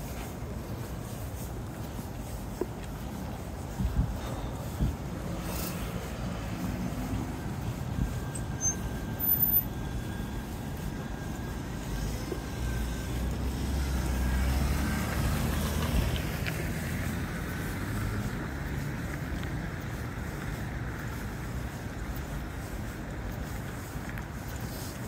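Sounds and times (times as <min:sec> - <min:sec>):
passing vehicle rumble: 0:11.1 - 0:21.4.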